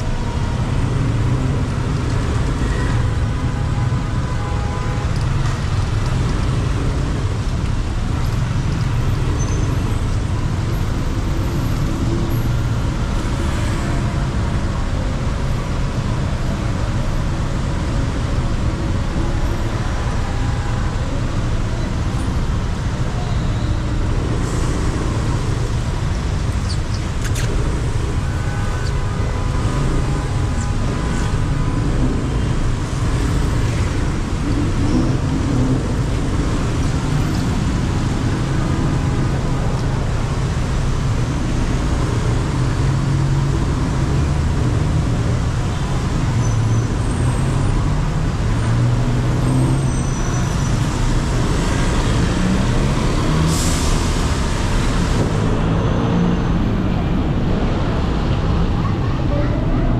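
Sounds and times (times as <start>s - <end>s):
cars and buses passing: 0.0s - 59.9s
motorbike engine and road noise: 0.0s - 59.9s.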